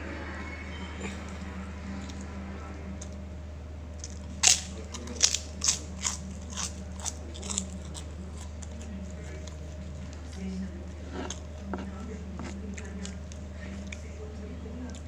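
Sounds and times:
person crunching a fried cracker: 0:04.0 - 0:10.4.

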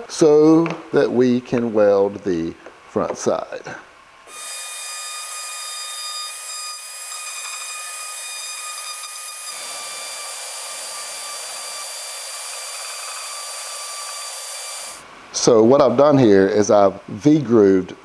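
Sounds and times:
die grinder whining: 0:04.3 - 0:15.0.

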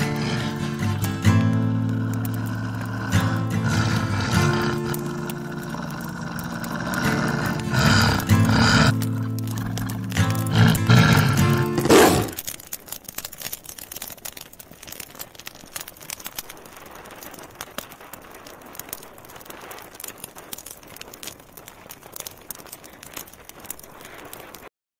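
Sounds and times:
bonfire crackling: 0:00.0 - 0:24.7.

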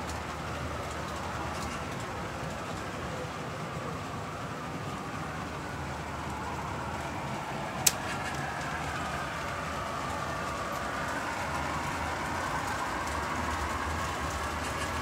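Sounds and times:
toy train motors and wheels running: 0:00.0 - 0:15.0.

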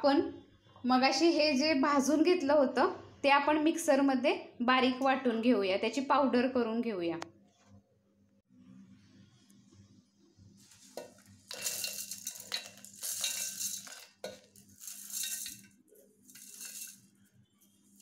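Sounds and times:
glass bowl clinking on jar: 0:11.0 - 0:15.7, 0:16.3 - 0:17.0
dry nuts rattling into steel jar: 0:11.0 - 0:17.1.

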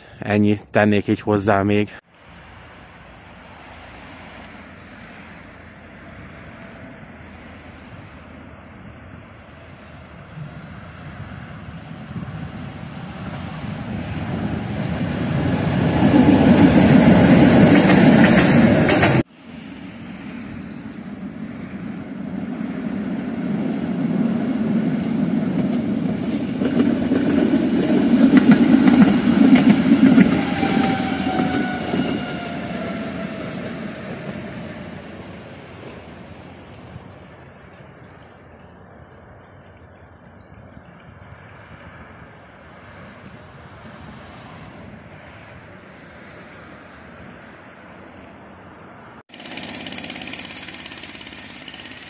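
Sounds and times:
tram wheels rumbling on rails: 0:09.9 - 0:37.6
falling whine: 0:27.7 - 0:37.2.

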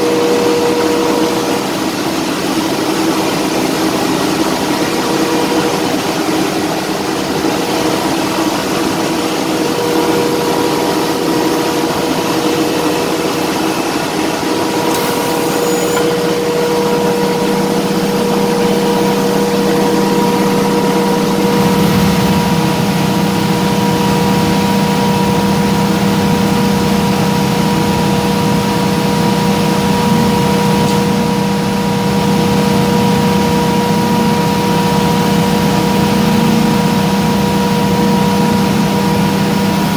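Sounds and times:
low hum: 0:00.0 - 0:25.4
engine-room machinery din: 0:00.0 - 0:39.9
steady whining tones: 0:00.0 - 0:39.9.

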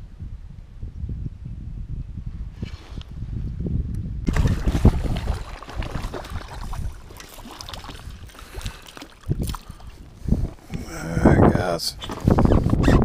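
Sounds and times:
gear rubbing against camera: 0:12.0 - 0:13.0.

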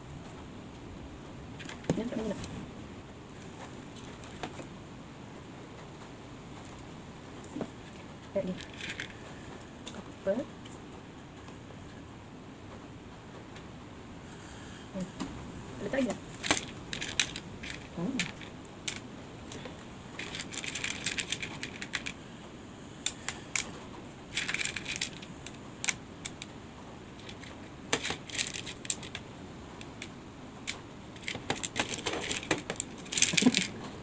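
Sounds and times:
stones clicking in plastic bowl: 0:16.4 - 0:22.2, 0:30.7 - 0:33.8.

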